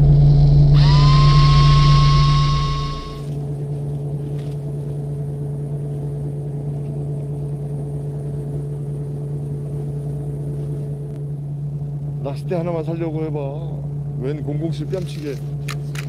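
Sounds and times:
faint steady high tone: 0:00.0 - 0:03.4
electric fishing reel whine: 0:00.0 - 0:03.5
boat engine humming: 0:00.0 - 0:16.0.

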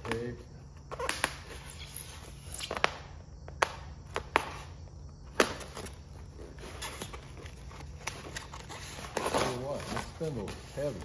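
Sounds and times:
rustling scrapes: 0:06.3 - 0:11.0.

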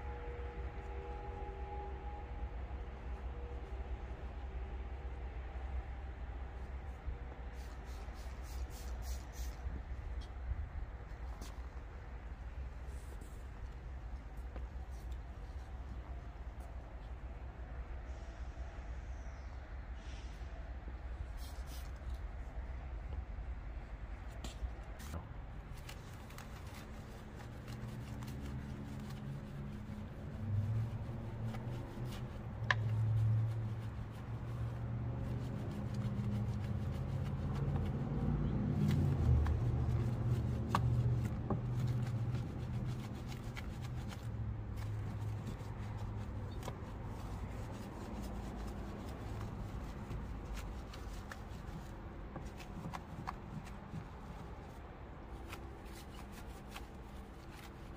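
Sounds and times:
low steady hum: 0:00.0 - 0:57.9
brush scrubbing wet wheel: 0:25.7 - 0:57.9.

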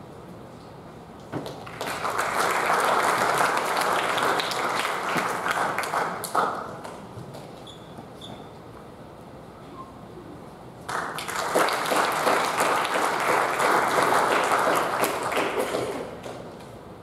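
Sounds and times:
audience applauding: 0:01.5 - 0:06.8, 0:10.9 - 0:16.4.

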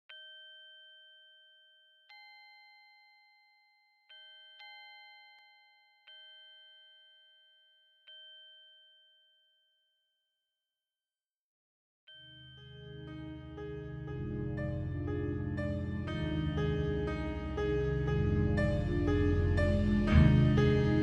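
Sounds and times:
faint bell-like chime notes: 0:12.1 - 0:14.8.

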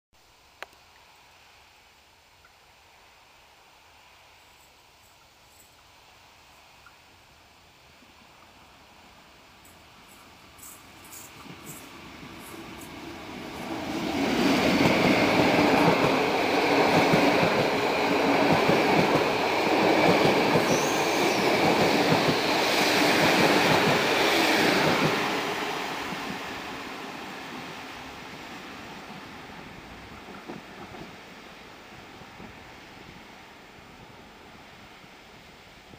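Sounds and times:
train wheels on rails: 0:09.6 - 0:35.9
high squeal: 0:20.6 - 0:21.6.

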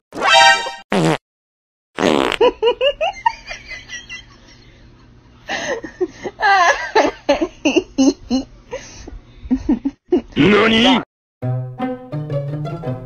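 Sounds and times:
person laughing: 0:02.4 - 0:04.7, 0:05.5 - 0:08.5, 0:09.5 - 0:10.5.

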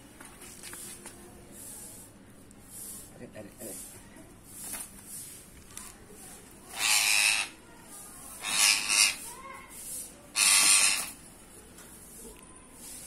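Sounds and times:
parrot screeching: 0:06.7 - 0:07.6, 0:08.4 - 0:09.3, 0:10.3 - 0:11.2.

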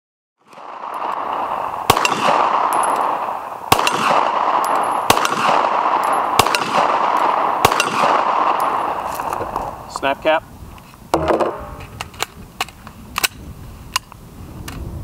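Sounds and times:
handgun shots: 0:01.9 - 0:08.8.

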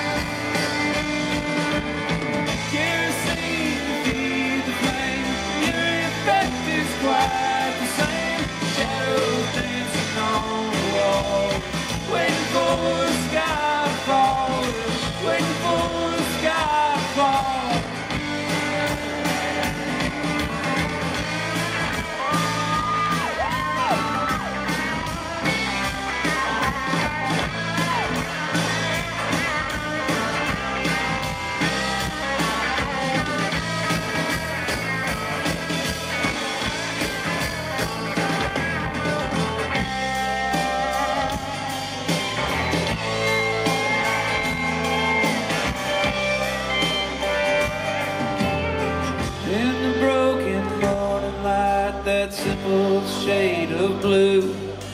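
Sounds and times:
country-rock band playing: 0:00.0 - 0:54.9.

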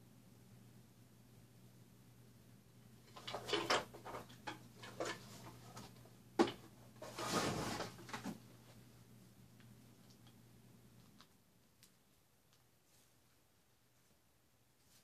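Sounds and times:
scraping and rustling: 0:03.0 - 0:06.0, 0:06.9 - 0:08.4.

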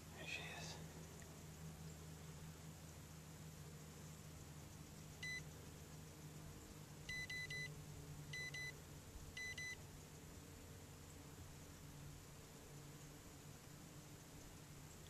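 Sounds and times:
faint low hum: 0:00.0 - 0:15.0
high electronic beeps: 0:07.1 - 0:07.7.

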